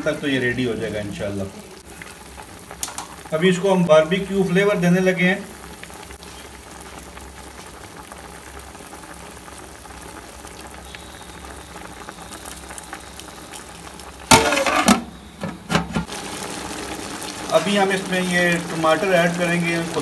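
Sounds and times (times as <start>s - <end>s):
oil sizzling on charcoal: 0.0s - 20.0s
pot bubbling: 0.0s - 20.0s
metal tray clinking: 14.3s - 16.1s.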